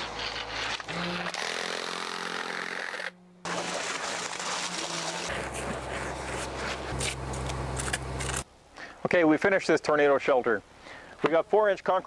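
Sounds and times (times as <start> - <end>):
scraping and knocking concrete: 3.5 - 7.2
pump truck engine running: 3.6 - 8.4.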